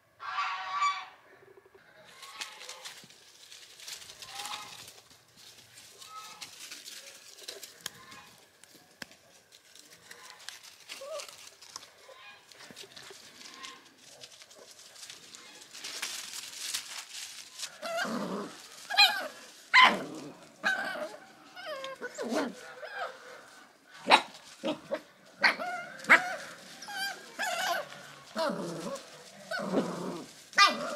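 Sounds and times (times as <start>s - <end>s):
puppies yapping and barking: 17.8s - 30.9s.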